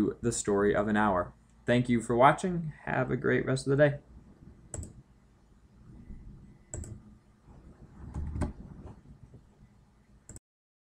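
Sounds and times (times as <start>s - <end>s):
computer mouse clicks: 4.7s - 5.0s, 6.7s - 7.0s.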